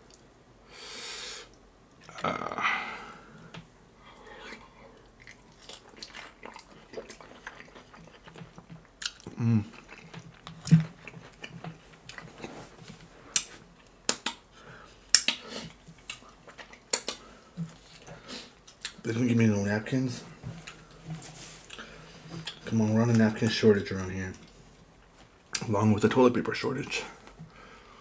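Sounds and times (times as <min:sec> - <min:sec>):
person humming: 0:02.1 - 0:03.1, 0:09.3 - 0:09.7
chewing fried chicken: 0:04.2 - 0:19.0
wet mouth clicks: 0:14.1 - 0:14.5, 0:15.1 - 0:15.5, 0:16.1 - 0:17.3.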